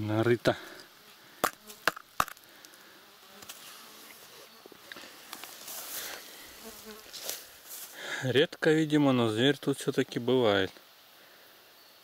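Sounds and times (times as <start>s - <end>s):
insects buzzing faintly: 0.0s - 12.0s
sharp knocks on soil: 1.4s - 2.4s.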